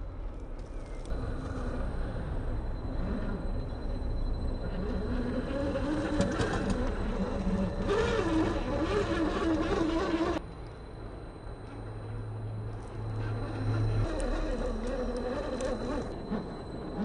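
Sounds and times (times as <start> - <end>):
electric motor whining: 1.1 - 10.4, 13.0 - 17.0.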